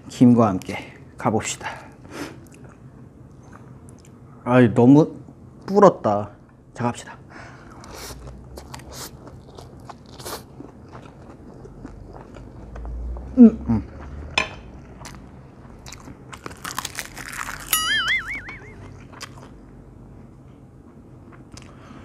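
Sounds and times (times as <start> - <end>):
wet chewing clicks: 7.8 - 13.3.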